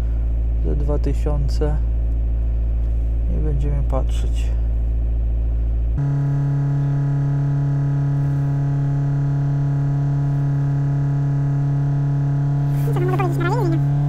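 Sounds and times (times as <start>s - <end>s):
diesel engine revving: 6.0s - 14.0s.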